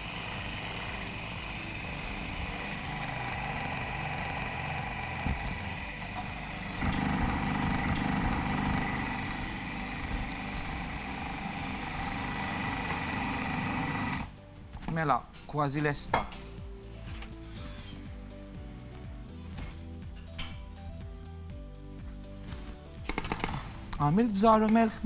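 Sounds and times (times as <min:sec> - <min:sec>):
food processor motor whining: 0:00.0 - 0:14.3.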